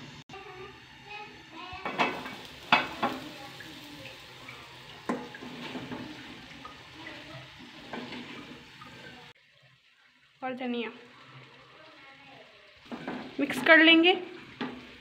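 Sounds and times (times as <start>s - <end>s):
light sizzle: 0.0s - 15.0s
wooden spoon stirring in a pot: 4.1s - 15.0s.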